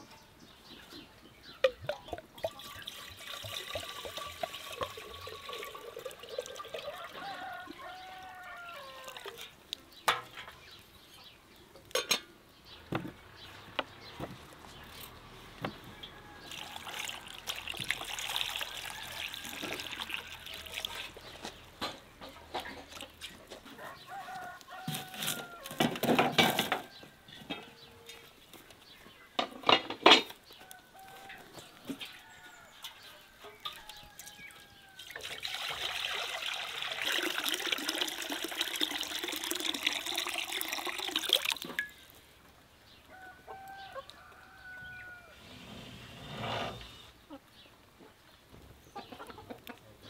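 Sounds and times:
water trickling into a bowl: 1.7 - 9.6, 16.4 - 21.4, 22.5 - 23.3, 32.3 - 42.2
water pouring from jug into wok: 2.4 - 7.8, 16.5 - 21.3, 35.0 - 42.0
hens clucking: 47.2 - 50.0.

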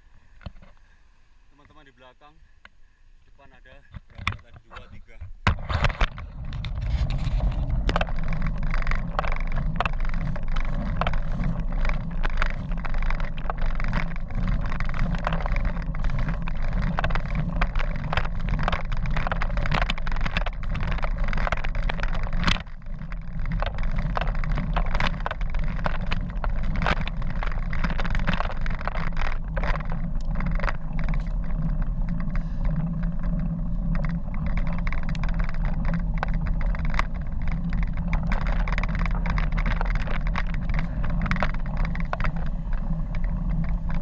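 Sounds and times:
wind and road rumble: 0.0 - 44.0
sharp clicks and knocks: 3.9 - 44.0.

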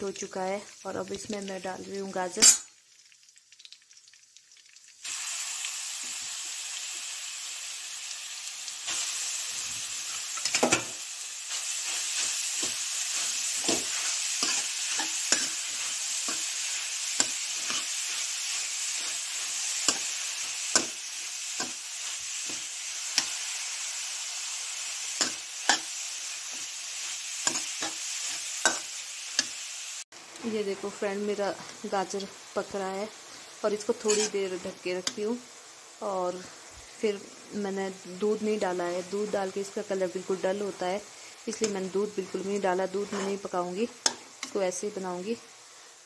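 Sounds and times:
carrots sizzling in hot fat: 0.0 - 46.0
steel spoon clinking and scraping pan: 10.1 - 23.4, 34.0 - 34.4.

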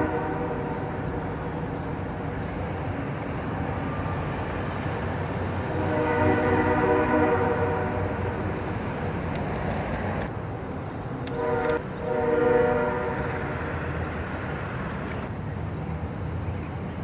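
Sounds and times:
train horn blasts: 0.0 - 1.1, 5.6 - 8.6, 11.2 - 14.0.

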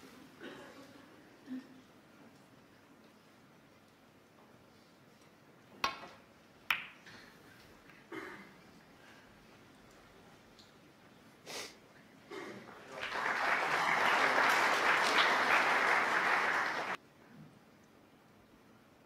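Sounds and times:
audience applauding: 12.6 - 17.0.

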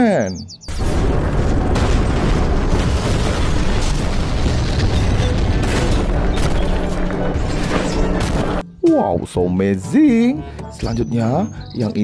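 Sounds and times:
booming battle sound effects: 0.7 - 8.6
sharp impacts: 0.7 - 8.6
music: 5.3 - 12.0.

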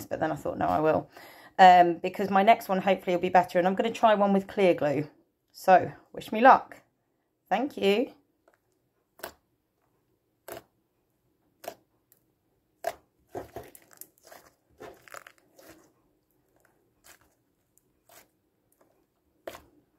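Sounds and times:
slime squelching and popping: 8.4 - 9.5, 10.4 - 10.8, 11.5 - 19.9.

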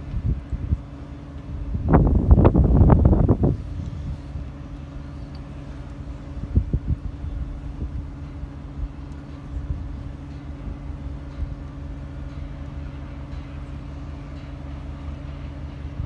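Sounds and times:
low engine hum: 0.0 - 16.0
wind thumping on microphone: 1.5 - 4.6, 6.4 - 8.1.

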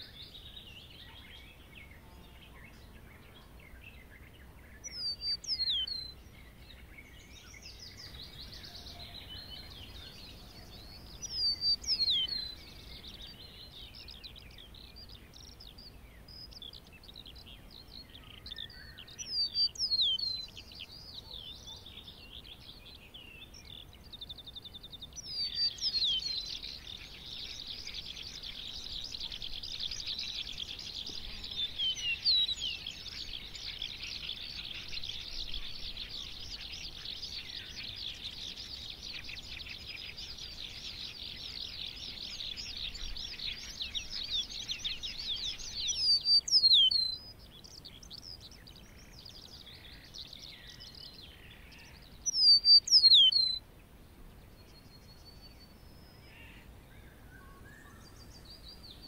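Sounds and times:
lark warbling song: 25.3 - 47.3, 48.1 - 53.6.

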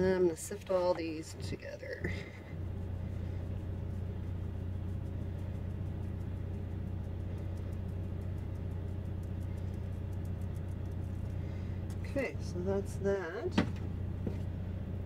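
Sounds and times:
generator engine humming: 0.0 - 15.0.

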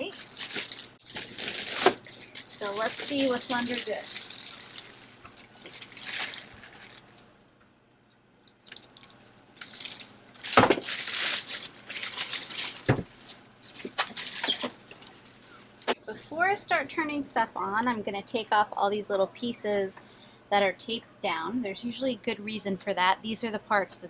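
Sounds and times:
plastic bag rustling: 0.0 - 7.3, 8.5 - 15.9.

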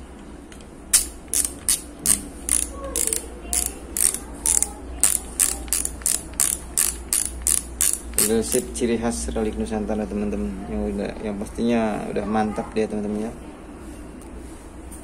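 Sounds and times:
reel seat ring ratcheting clicks: 0.9 - 8.7.

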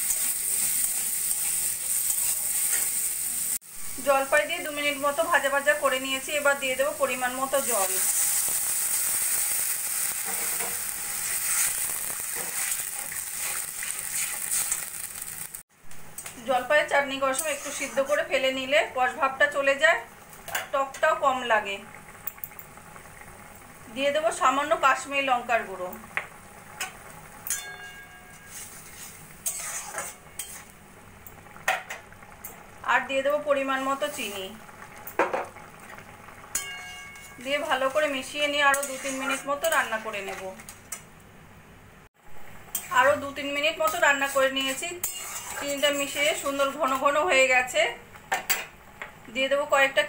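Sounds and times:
metal spatula stirring: 0.0 - 2.9, 10.2 - 14.9, 17.3 - 18.4, 27.5 - 30.7, 36.5 - 41.0, 43.8 - 47.2
hot oil sizzling: 0.0 - 50.0
faint metallic ring: 27.5 - 28.5.

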